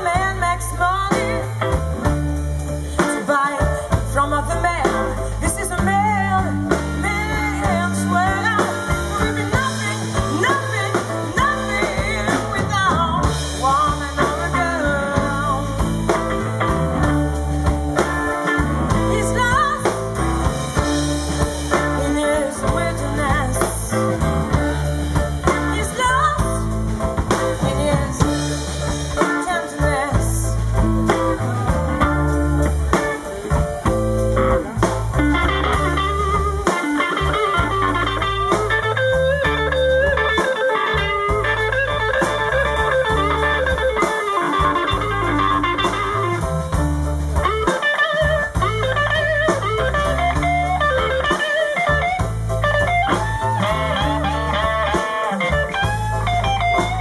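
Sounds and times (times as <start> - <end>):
woman singing: 0.0 - 33.6
bass guitar: 0.0 - 57.0
drum kit: 0.0 - 57.0
electric guitar: 0.0 - 57.0
keyboard: 0.0 - 57.0.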